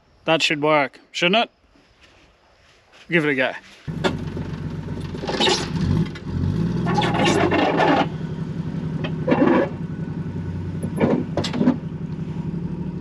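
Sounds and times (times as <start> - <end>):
vehicle engine revving under load: 3.9 - 13.0.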